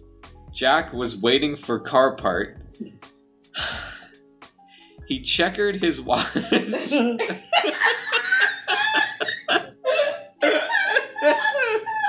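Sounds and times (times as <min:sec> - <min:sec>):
people laughing: 0:05.8 - 0:12.0.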